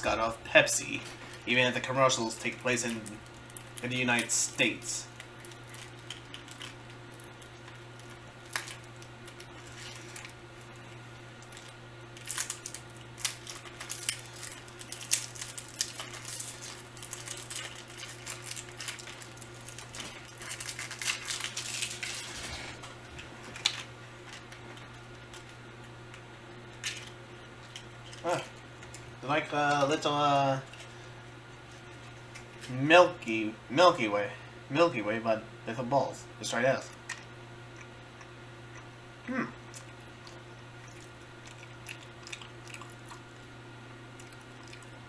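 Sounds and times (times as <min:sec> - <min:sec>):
steady low hum: 0:00.0 - 0:45.0
candy packaging crinkling: 0:00.9 - 0:31.1.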